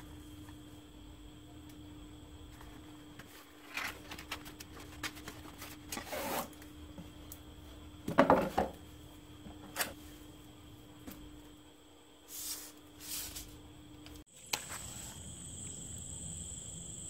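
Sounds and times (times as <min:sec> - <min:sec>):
faint steady hum: 0:00.0 - 0:17.0
cardboard rubbing and scraping: 0:03.2 - 0:06.6.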